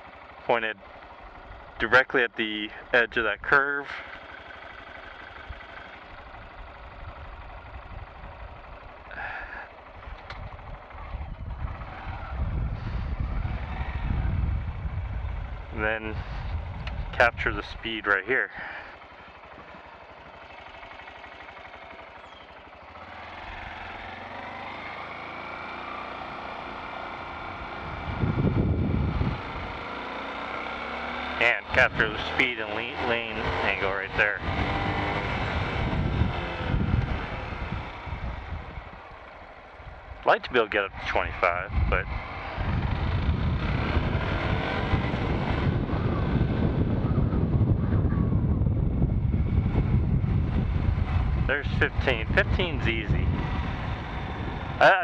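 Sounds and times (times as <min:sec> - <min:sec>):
motorcycle engine running: 0:00.0 - 0:55.0
loud low rumble: 0:33.0 - 0:55.0.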